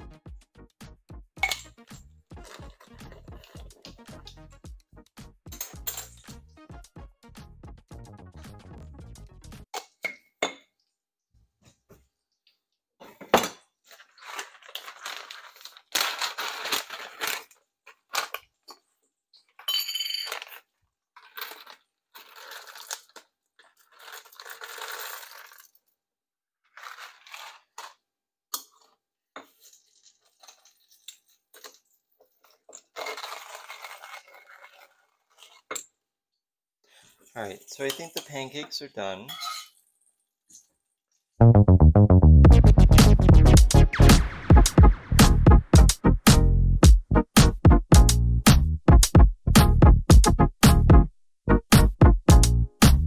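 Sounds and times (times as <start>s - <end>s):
utensils and dishes clinking: 1.4s - 1.8s, 5.5s - 6.4s, 37.6s - 38.5s, 39.2s - 39.8s
scraping or rustling: 21.2s - 25.7s, 26.7s - 28.0s, 29.5s - 35.7s.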